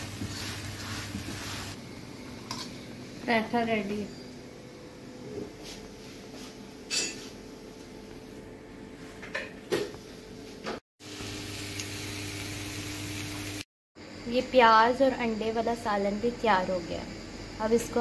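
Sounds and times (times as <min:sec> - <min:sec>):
dishes clinking: 0:06.9 - 0:07.3.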